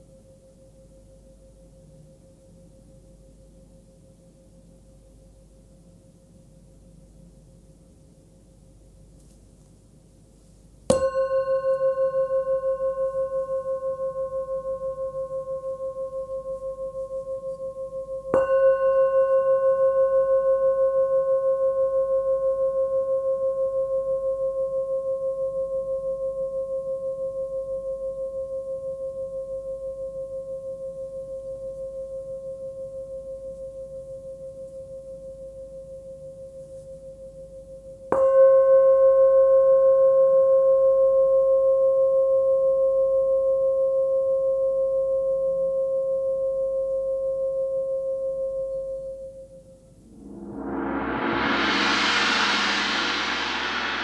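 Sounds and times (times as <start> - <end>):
singing bowl ringing: 11.0 - 14.4, 17.0 - 23.4.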